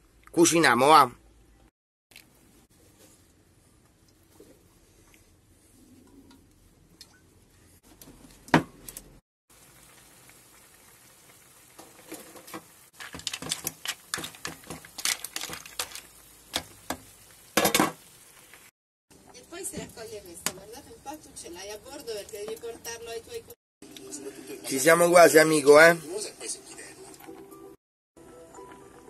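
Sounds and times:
seafood sizzling in oil: 0:09.5 - 0:18.7
shells clicking in pan: 0:13.0 - 0:16.7.

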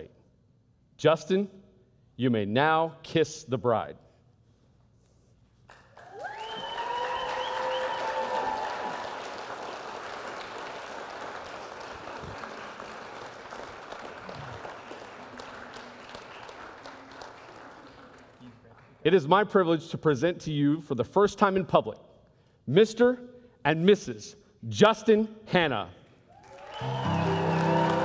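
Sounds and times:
congregation applauding: 0:05.7 - 0:19.0, 0:26.2 - 0:28.0
whooping cheers: 0:06.0 - 0:09.4, 0:26.3 - 0:28.0.

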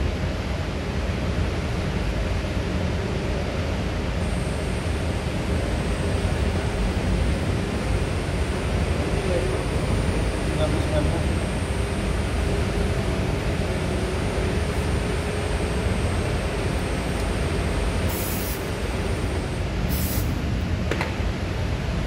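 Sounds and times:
machinery room noise: 0:00.0 - 0:22.0
aerosol can hissing: 0:18.1 - 0:18.6, 0:19.9 - 0:20.3.

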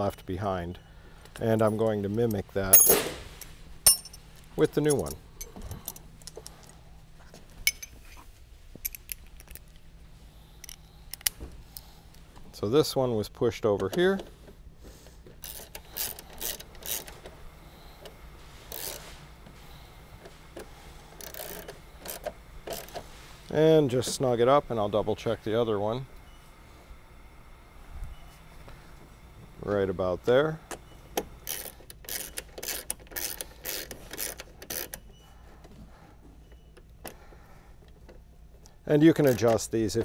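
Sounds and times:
socket wrench scraping and clicking: 0:15.4 - 0:17.2, 0:20.6 - 0:23.0, 0:31.5 - 0:35.1.

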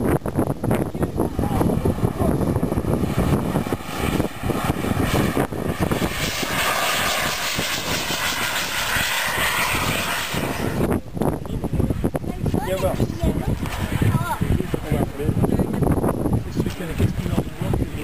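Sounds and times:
low rumble: 0:00.0 - 0:17.9
model aircraft engine whine: 0:00.1 - 0:11.4.

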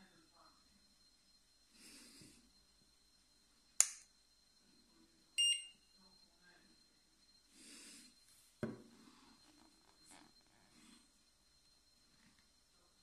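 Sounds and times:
thermometer click: 0:03.8 - 0:04.1
short high beep: 0:05.4 - 0:05.8.

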